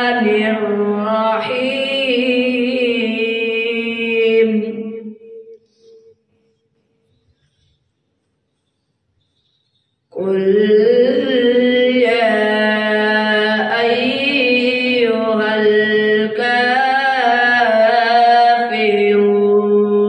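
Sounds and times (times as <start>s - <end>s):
boy reciting melodically: 0.0s - 6.1s, 10.1s - 20.0s.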